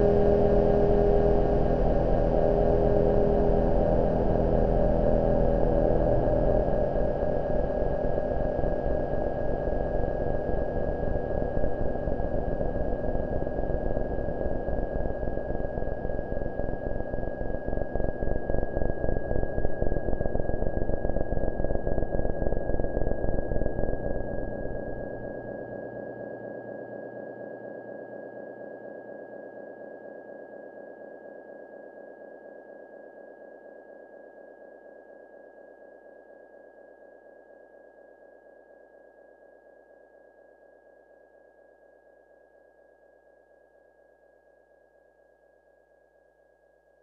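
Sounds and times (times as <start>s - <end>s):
pulsing synth buzz: 0.0s - 7.2s.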